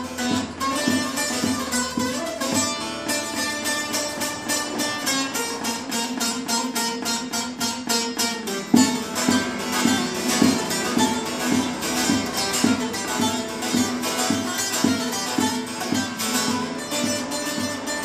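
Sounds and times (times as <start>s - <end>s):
long-necked lute plucked: 0.0s - 18.0s.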